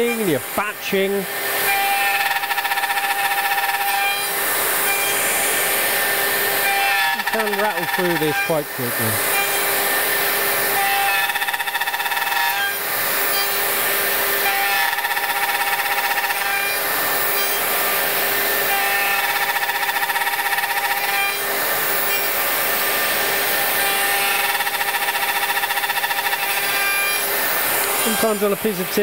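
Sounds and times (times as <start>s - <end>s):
router cutting wood: 0.0s - 29.0s.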